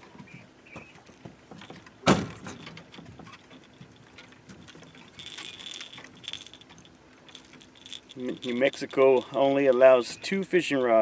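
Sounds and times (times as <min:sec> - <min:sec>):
metallic jingling rattle: 0:01.5 - 0:11.0
fishing tackle clicks: 0:03.6 - 0:11.0.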